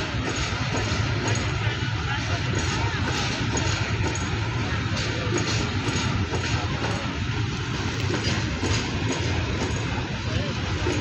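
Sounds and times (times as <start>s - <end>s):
train wheels running on rails: 0.0s - 11.0s.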